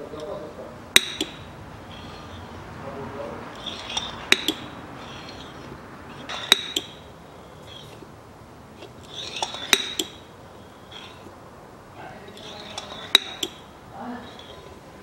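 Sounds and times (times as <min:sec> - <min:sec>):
oil pump metallic clinks: 0:00.9 - 0:02.6, 0:03.5 - 0:08.0, 0:08.8 - 0:11.4, 0:12.3 - 0:14.8.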